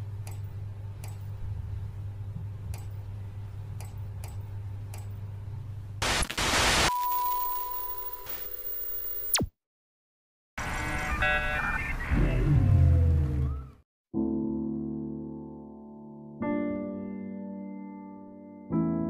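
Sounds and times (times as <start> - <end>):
low electrical hum: 0.0 - 6.4
burst of static: 6.0 - 7.0
steady electronic beep: 6.9 - 9.5.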